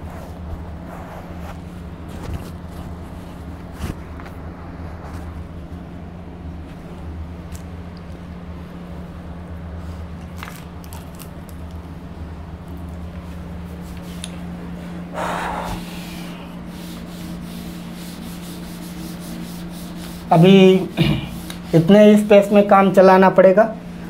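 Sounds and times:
low hum of room tone: 0.0s - 24.0s.

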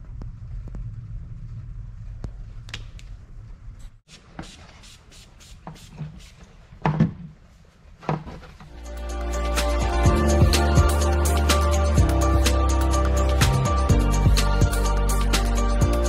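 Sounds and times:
low steady hum: 0.0s - 4.0s.

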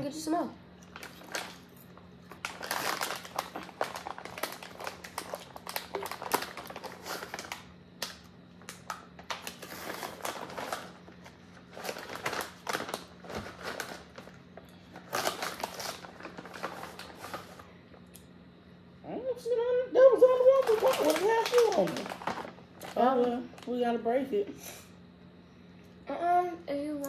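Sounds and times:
plastic pouch crinkling: 0.8s - 17.6s, 20.5s - 23.8s.

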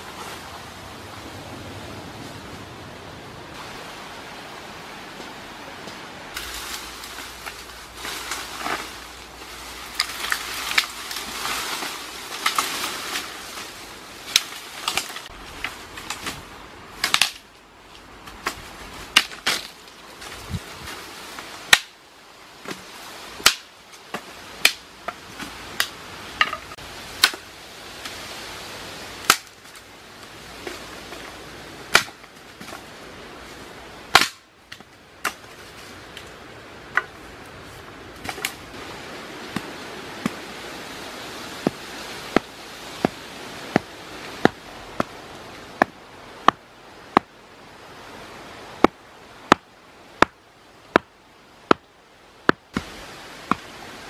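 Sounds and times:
dry wood cracking and knocking: 6.4s - 13.7s, 14.3s - 21.0s, 38.2s - 38.7s
stone pounding wooden stake: 41.6s - 45.2s, 48.8s - 51.1s.

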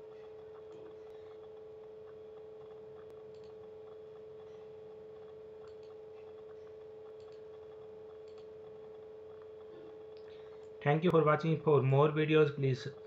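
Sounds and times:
steady background hum: 0.0s - 13.0s
faint clicks: 3.0s - 3.6s, 5.2s - 7.5s, 8.1s - 9.0s.

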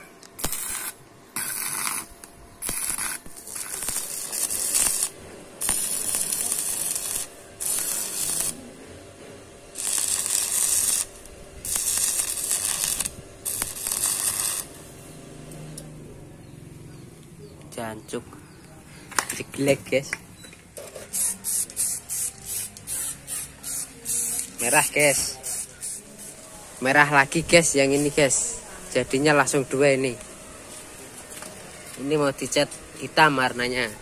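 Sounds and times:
hissing noise bursts: 0.4s - 9.0s, 21.0s - 28.4s.

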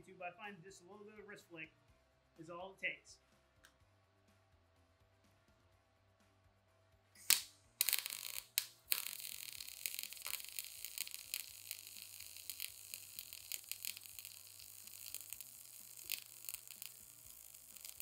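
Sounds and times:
spatter pops: 7.2s - 18.0s
welding arc crackling: 7.2s - 18.0s.

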